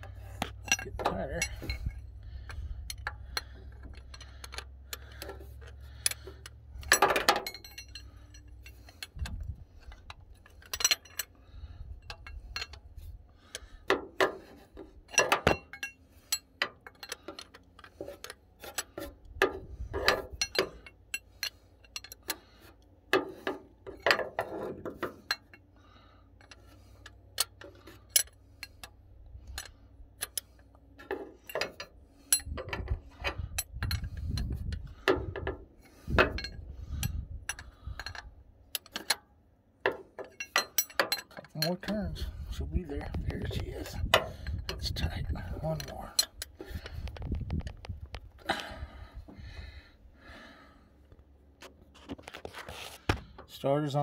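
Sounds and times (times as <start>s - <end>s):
wrench clicking on a bolt: 31.5s - 39.2s.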